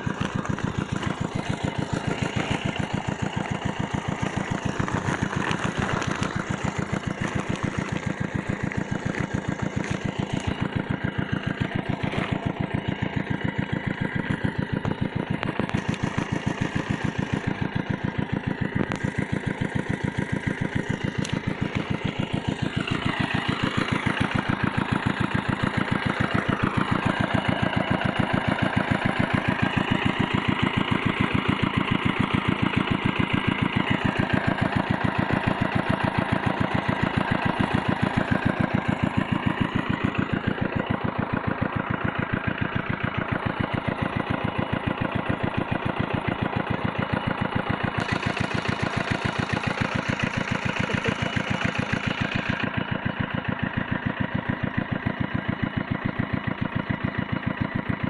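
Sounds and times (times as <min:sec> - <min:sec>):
small pump engine running: 0:00.0 - 0:58.0.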